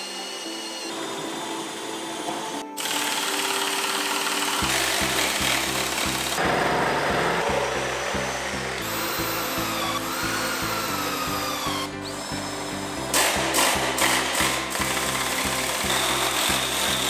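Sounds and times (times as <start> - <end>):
cordless drill whining: 0.0 - 6.4, 7.4 - 17.0
drill bit biting into wood: 0.0 - 6.4, 7.5 - 17.0
background music with beat: 4.3 - 17.0.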